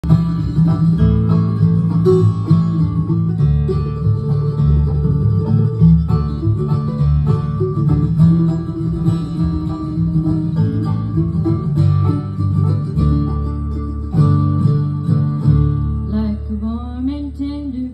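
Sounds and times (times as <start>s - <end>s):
banjo rolls: 0.0s - 17.7s
acoustic guitar: 0.0s - 17.9s
upright bass: 0.0s - 17.9s.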